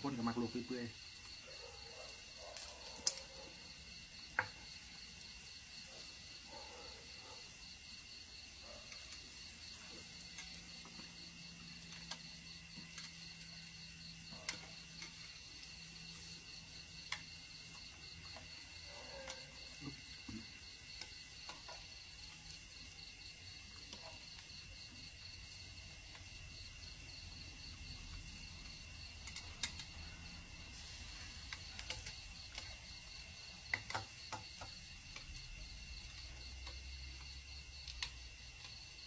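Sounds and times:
crickets chirring: 0:00.0 - 0:39.0
utensils tapping metal grill pan: 0:29.2 - 0:29.9, 0:31.4 - 0:32.9, 0:33.5 - 0:35.4.

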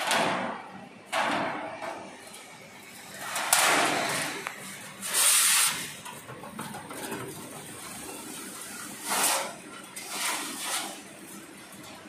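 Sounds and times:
metal sheet scraping and rattling: 0:00.0 - 0:12.0
roller machine running: 0:00.0 - 0:12.0.

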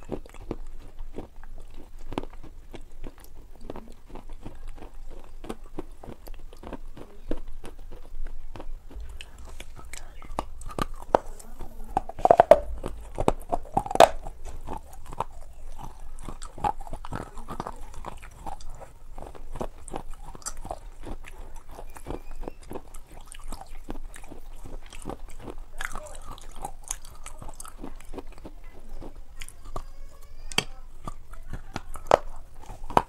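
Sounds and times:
wet mouth clicks and smacks: 0:00.0 - 0:29.9, 0:30.5 - 0:33.0
person chewing and biting food: 0:00.0 - 0:33.0.

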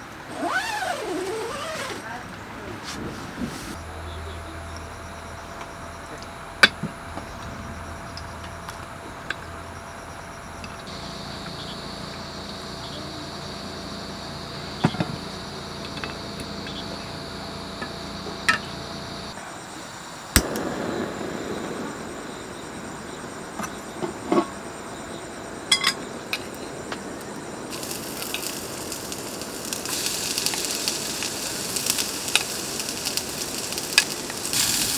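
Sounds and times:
background hum: 0:00.0 - 0:34.9
cookware clinking and knocking: 0:25.7 - 0:26.0.

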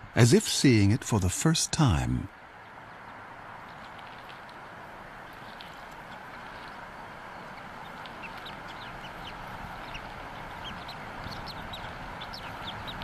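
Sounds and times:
steady background hiss: 0:00.0 - 0:13.0
eagle chick peeping: 0:05.2 - 0:13.0.

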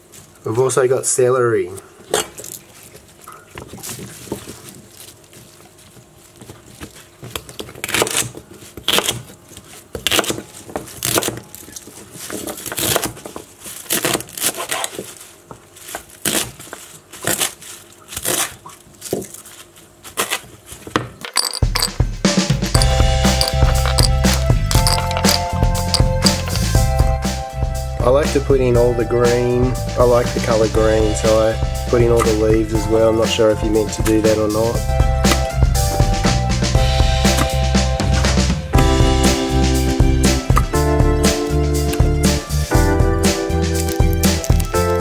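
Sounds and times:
knife chopping celery on board: 0:10.0 - 0:11.4
music: 0:21.6 - 0:45.0.

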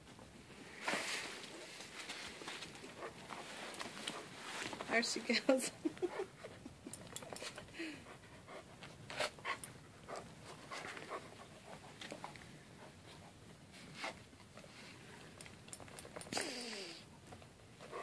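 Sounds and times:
dog panting: 0:02.6 - 0:04.7, 0:05.7 - 0:15.2, 0:17.7 - 0:18.0.

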